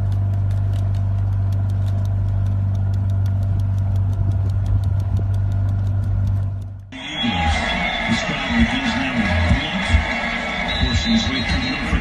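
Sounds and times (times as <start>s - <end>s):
quick even ticking: 0.0s - 7.0s
motorboat engine droning: 0.0s - 12.0s.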